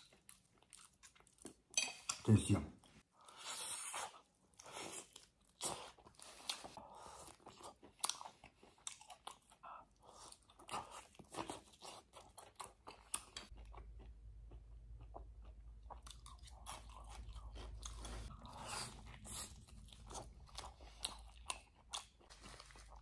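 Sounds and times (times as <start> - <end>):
man chewing with wet smacks: 0.0 - 1.8, 3.2 - 23.0.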